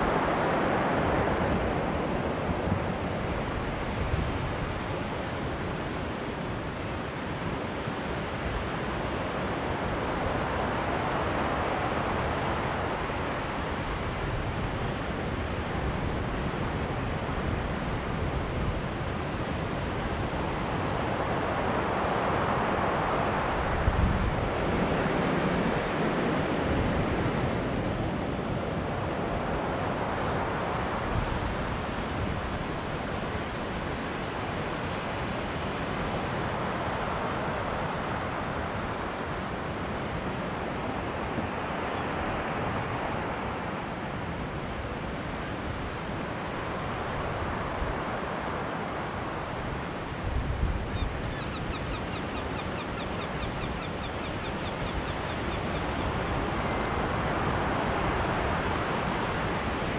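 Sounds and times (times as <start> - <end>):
wind buffeting microphone: 0.0 - 51.8.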